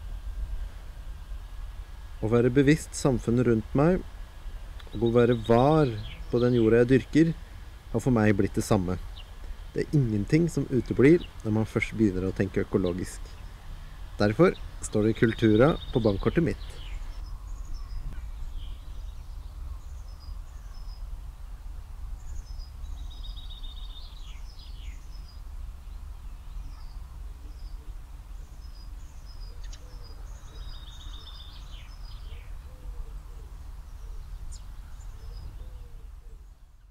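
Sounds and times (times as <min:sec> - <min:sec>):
steady low rumble: 0:00.0 - 0:32.7
songbirds chirping: 0:00.0 - 0:36.9
buzzy bird trills: 0:04.8 - 0:07.8, 0:26.2 - 0:36.9.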